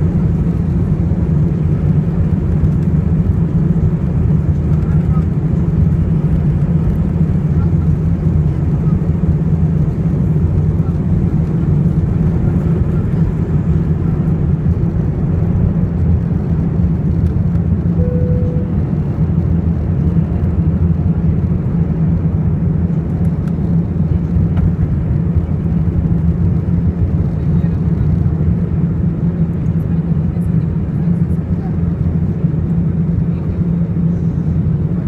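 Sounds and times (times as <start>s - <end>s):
jet engine roar in cabin: 0.0s - 35.0s
brief steady tone: 18.0s - 18.9s.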